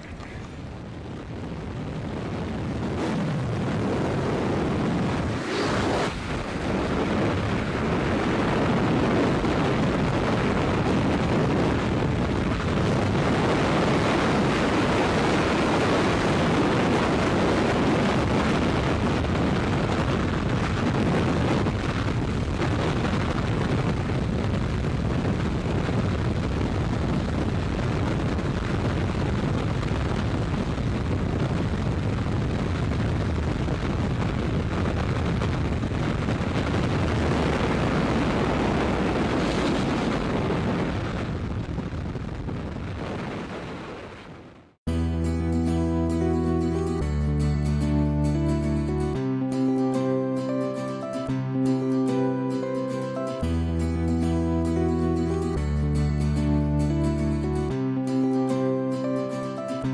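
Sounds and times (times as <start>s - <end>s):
wind buffeting microphone: 0.0s - 44.8s.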